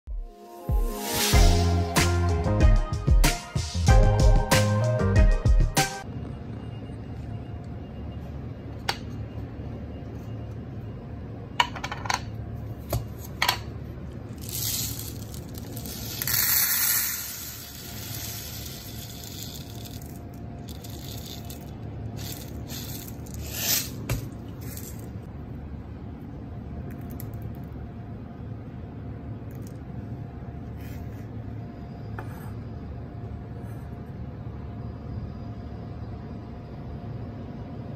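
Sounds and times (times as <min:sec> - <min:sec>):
dry beans pouring and rattling: 0:14.4 - 0:25.2.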